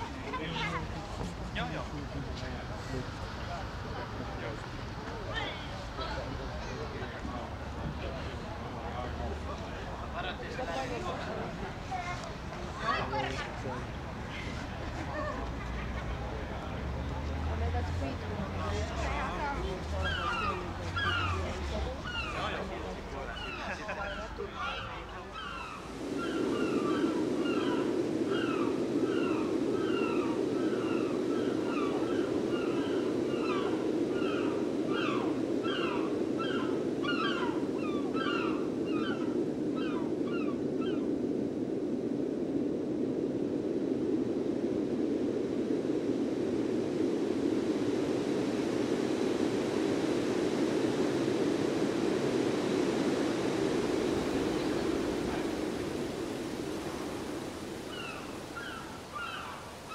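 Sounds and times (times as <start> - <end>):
steady low rushing noise: 0.0 - 59.9
gulls calling: 17.6 - 41.5, 50.5 - 59.9.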